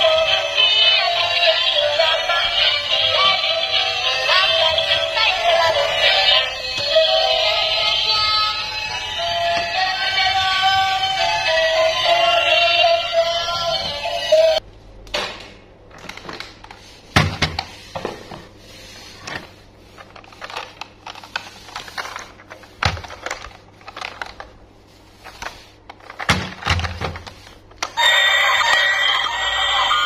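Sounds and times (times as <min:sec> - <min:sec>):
music: 0:00.0 - 0:14.6, 0:28.0 - 0:30.0
plastic toy train rattling: 0:20.0 - 0:24.5.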